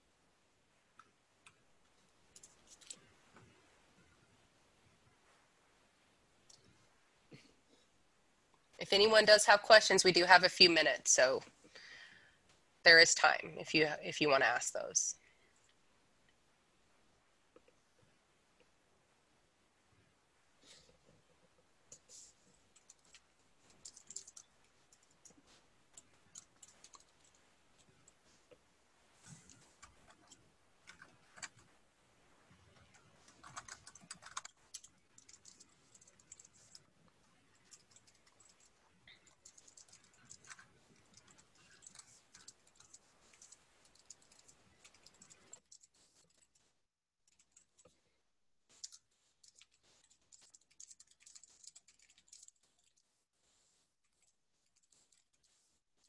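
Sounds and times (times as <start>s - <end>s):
faint keyboard typing: 0.9s - 5.1s, 6.4s - 7.9s, 20.6s - 28.6s, 29.2s - 31.8s, 32.4s - 55.8s.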